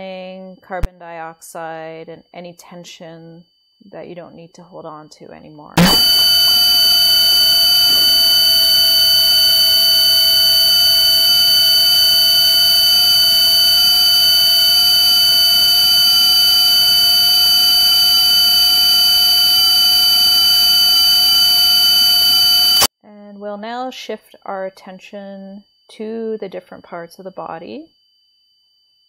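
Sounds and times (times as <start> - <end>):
steady electronic chord tone: 5.8 - 22.9.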